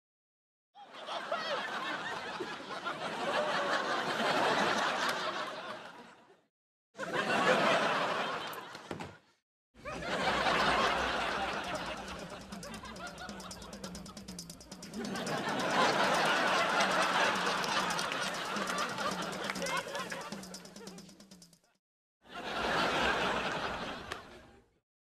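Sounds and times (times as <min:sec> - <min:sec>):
studio audience laughter: 0:00.8 - 0:09.2, 0:09.8 - 0:14.1, 0:15.0 - 0:20.6, 0:22.3 - 0:24.7.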